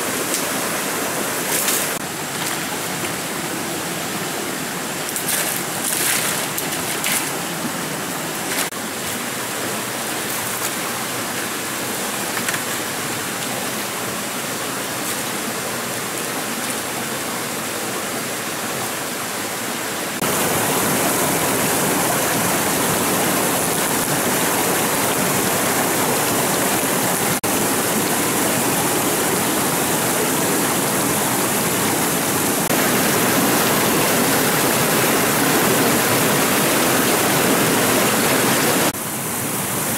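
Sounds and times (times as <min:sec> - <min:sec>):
water spilling over rocks: 0:00.0 - 0:17.3, 0:20.2 - 0:39.9
rocky stream running: 0:00.0 - 0:39.9.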